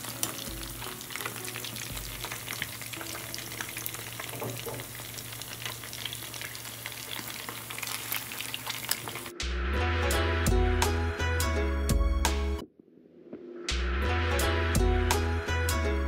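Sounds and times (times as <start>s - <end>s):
music: 0.0s - 5.1s, 9.2s - 16.0s
food sizzling in hot oil: 0.0s - 9.4s.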